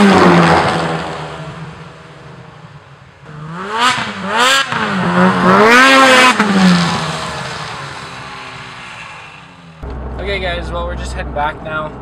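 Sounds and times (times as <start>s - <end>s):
snowmobile revving and passing: 3.3s - 8.2s.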